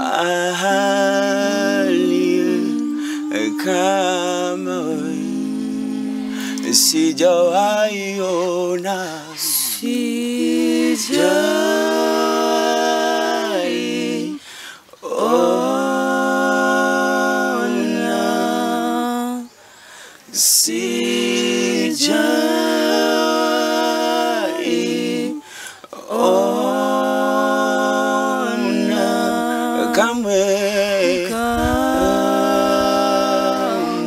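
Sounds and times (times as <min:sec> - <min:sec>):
group singing a cappella: 0:00.0 - 0:34.0
humming voices: 0:28.4 - 0:34.0.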